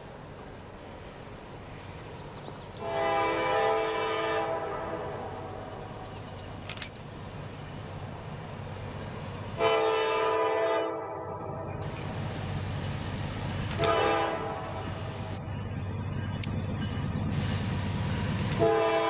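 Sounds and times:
low rumble of train: 0:00.0 - 0:19.0
locomotive air horn blasts: 0:02.8 - 0:05.7, 0:09.6 - 0:11.9, 0:13.8 - 0:15.1, 0:18.5 - 0:19.0.

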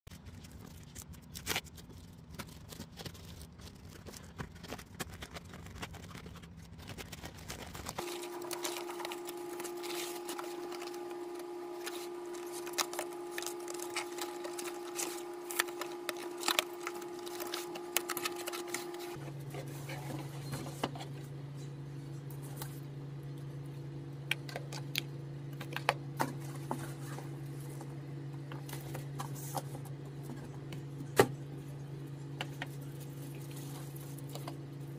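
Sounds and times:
crinkling plastic and cardboard: 0:00.1 - 0:21.1
steady hum: 0:08.0 - 0:34.9.

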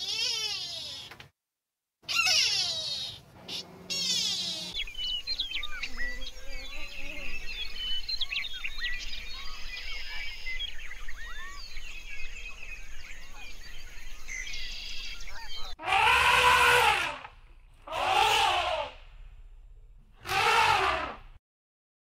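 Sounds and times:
drawn-out rising and falling call: 0:02.1 - 0:11.8, 0:14.4 - 0:19.3, 0:20.2 - 0:21.4
birds chirping and whistling: 0:02.1 - 0:17.0.

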